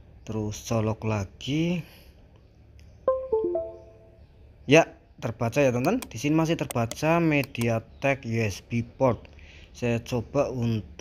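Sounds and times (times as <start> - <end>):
falling three-note notification chime: 3.1 - 4.2.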